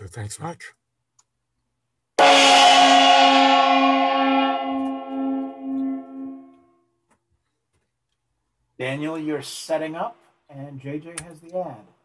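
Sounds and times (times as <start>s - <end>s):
gong ringing: 2.2s - 6.6s.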